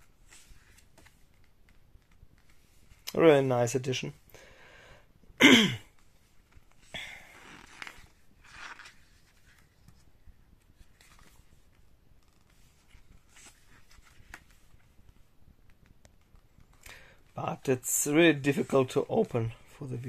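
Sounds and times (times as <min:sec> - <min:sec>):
paper pages turning: 0:06.3 - 0:15.2.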